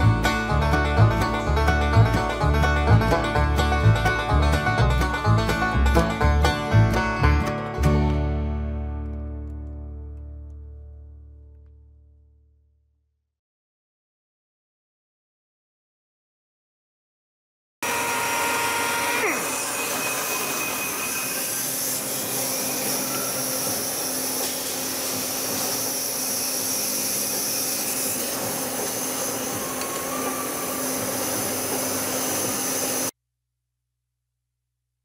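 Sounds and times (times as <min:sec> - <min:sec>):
lathe motor winding down: 0:17.8 - 0:33.1
machine whir and hiss: 0:17.8 - 0:33.1.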